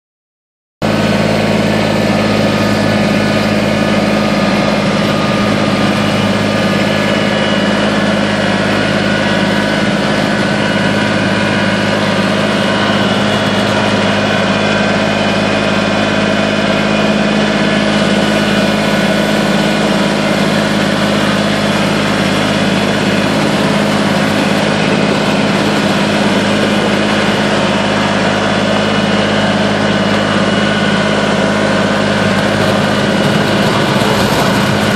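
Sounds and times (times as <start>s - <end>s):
tractor diesel engine running: 0.8s - 34.9s.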